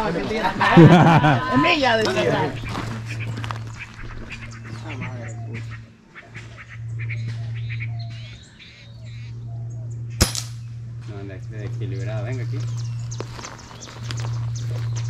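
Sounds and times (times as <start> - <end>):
birds chirping: 0.0 - 15.0
steady low hum: 0.0 - 15.0
sharp crack: 10.2 - 10.6.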